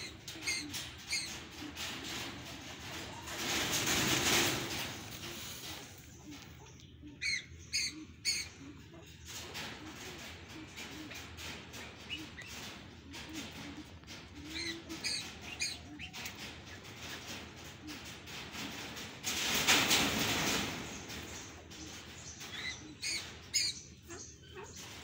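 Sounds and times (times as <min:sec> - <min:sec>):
pheasant flapping wings: 0:00.3 - 0:06.4, 0:09.3 - 0:21.8.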